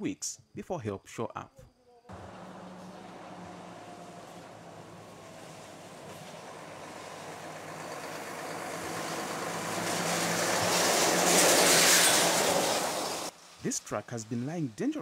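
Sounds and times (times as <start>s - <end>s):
vehicle passing by: 2.1s - 13.3s.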